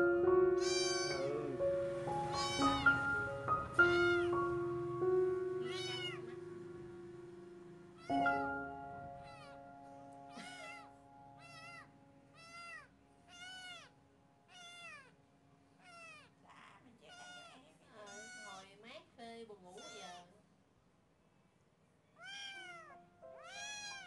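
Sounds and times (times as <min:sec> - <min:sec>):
kitten mewing: 0:00.6 - 0:01.4, 0:02.3 - 0:03.0, 0:03.8 - 0:04.4, 0:05.6 - 0:06.4, 0:08.0 - 0:08.5, 0:09.2 - 0:09.6, 0:10.3 - 0:13.9, 0:14.5 - 0:15.2, 0:15.8 - 0:18.6, 0:19.8 - 0:20.3, 0:22.2 - 0:24.0.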